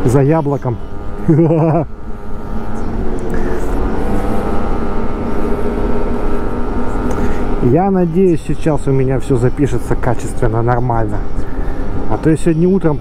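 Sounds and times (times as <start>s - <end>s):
scooter engine running: 0.0s - 13.0s
wind and road noise: 0.0s - 13.0s.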